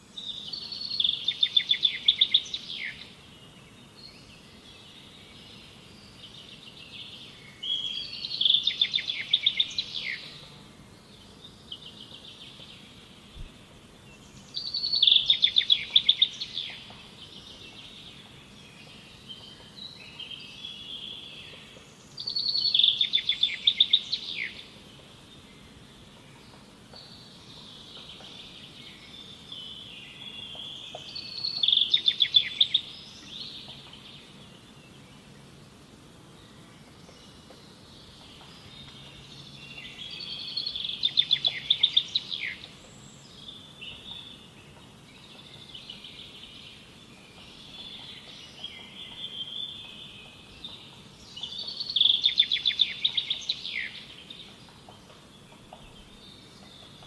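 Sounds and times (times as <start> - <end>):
songbird trilling: 0.2 - 3.1, 7.5 - 10.5, 14.5 - 16.9, 22.2 - 24.7, 27.9 - 34.1, 38.0 - 44.4, 45.6 - 57.0
soft bird twittering: 36.5 - 57.0.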